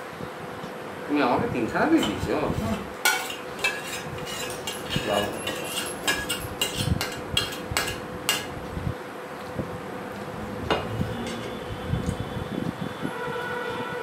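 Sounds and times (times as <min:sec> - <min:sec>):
metal plates and bowls clinking: 0:03.0 - 0:08.5, 0:10.7 - 0:11.6.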